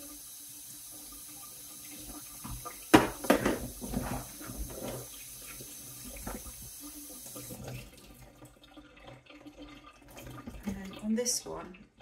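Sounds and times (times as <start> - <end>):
tap water splashing in sink: 0.0 - 12.0
plastic part knocking on sink: 2.4 - 5.0.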